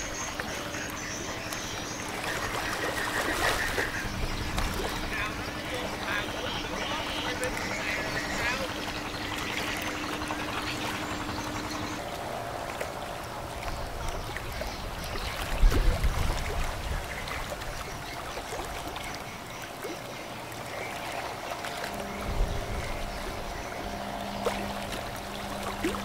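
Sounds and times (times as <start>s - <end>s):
ship machinery hum: 0.0s - 26.0s
water rushing in bow wave: 0.0s - 26.0s
low rumble: 21.9s - 26.0s.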